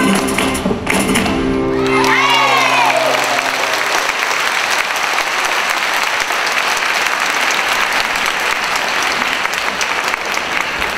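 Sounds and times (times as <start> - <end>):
guitar music: 0.0 - 2.9
audience applauding: 1.8 - 10.9.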